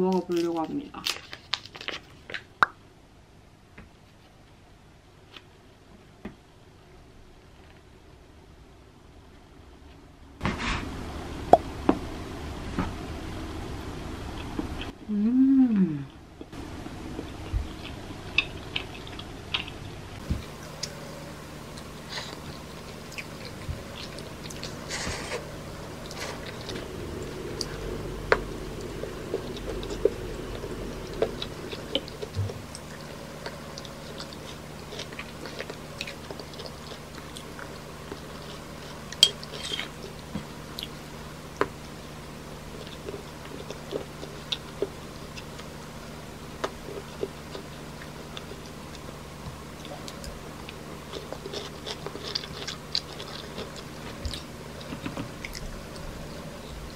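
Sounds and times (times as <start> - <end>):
person chewing and biting: 16.4 - 41.0, 42.7 - 49.2, 49.8 - 56.8.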